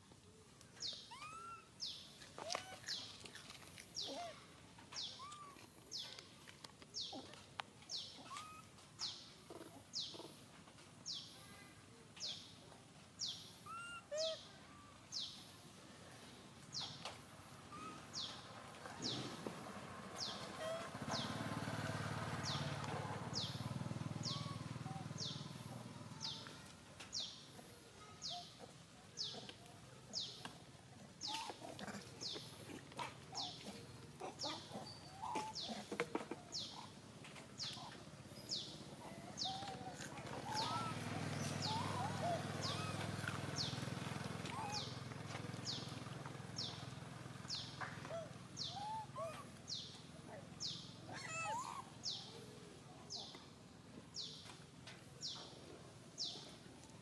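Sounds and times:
low bird calls: 0:37.6 - 0:43.8.

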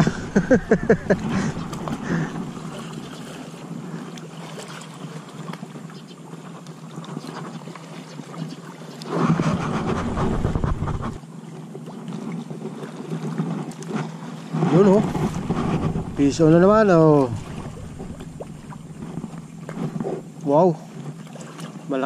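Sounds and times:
low rumble: 0:00.0 - 0:02.9, 0:09.4 - 0:11.2, 0:14.9 - 0:20.4
wind on microphone: 0:00.0 - 0:03.2, 0:09.1 - 0:11.2, 0:14.4 - 0:20.4
lapping lake water: 0:00.0 - 0:22.0.

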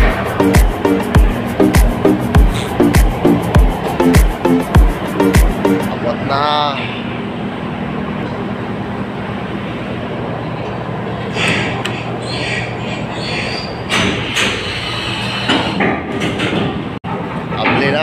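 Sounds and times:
ferry engines droning: 0:00.0 - 0:18.0
metallic knocks and clanks: 0:15.5 - 0:18.0.

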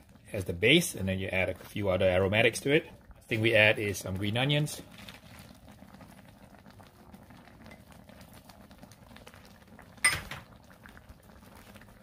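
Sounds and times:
sauce bubbling and crackling: 0:00.0 - 0:12.0.

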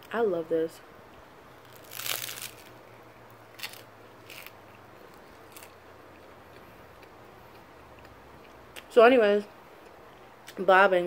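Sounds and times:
rice cake crunching: 0:01.6 - 0:02.8, 0:03.5 - 0:08.5.

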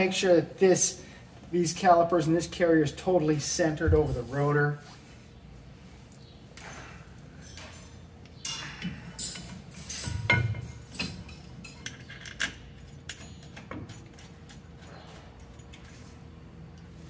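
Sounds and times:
metal parts clinking: 0:06.6 - 0:16.1.

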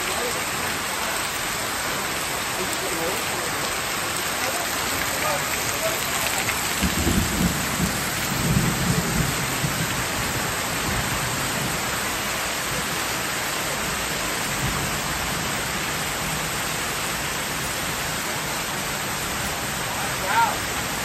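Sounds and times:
heavy rain pouring: 0:00.0 - 0:21.0
low rumble of thunder: 0:06.7 - 0:12.1.

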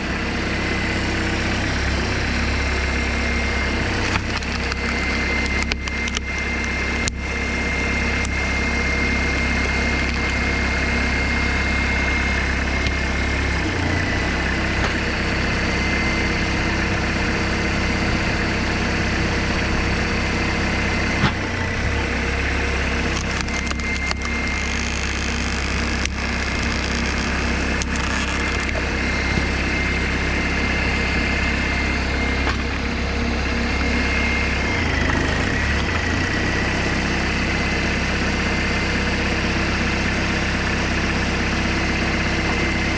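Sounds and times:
high whine: 0:00.0 - 0:42.9
tractor engine running: 0:00.0 - 0:42.9
wood creaking and splitting: 0:03.9 - 0:07.2, 0:22.9 - 0:29.6.

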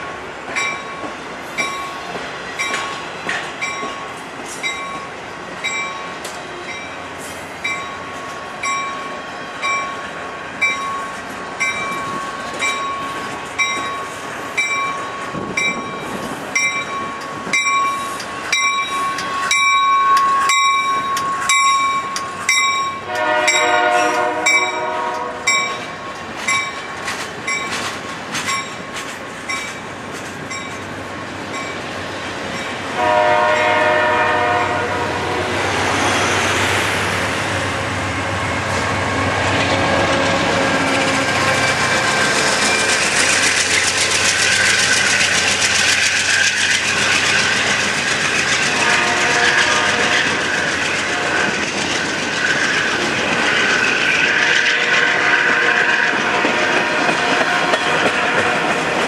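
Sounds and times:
train wheels clicking over joints: 0:00.4 - 0:09.0, 0:10.6 - 0:32.8, 0:38.5 - 0:59.0
locomotive horn chord: 0:23.1 - 0:25.7, 0:33.0 - 0:35.5, 0:48.8 - 0:50.3.

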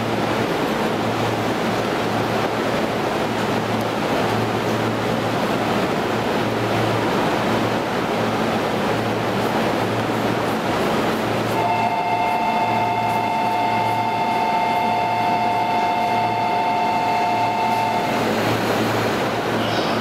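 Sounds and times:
electric train equipment humming: 0:00.0 - 0:20.0
steady two-note tone: 0:11.6 - 0:18.4.

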